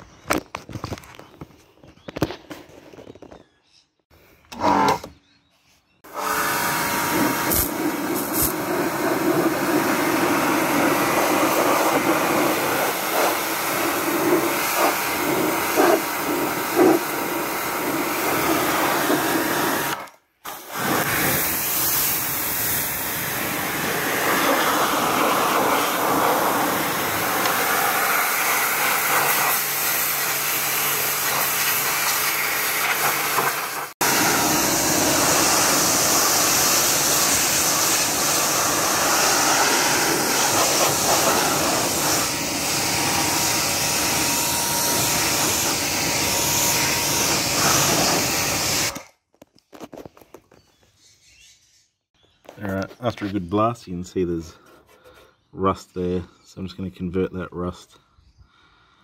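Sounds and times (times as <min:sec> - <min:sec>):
pressure washer motor drone: 0:06.1 - 0:20.1, 0:20.7 - 0:49.0
water jet hissing on metal: 0:07.1 - 0:17.0, 0:24.2 - 0:48.9.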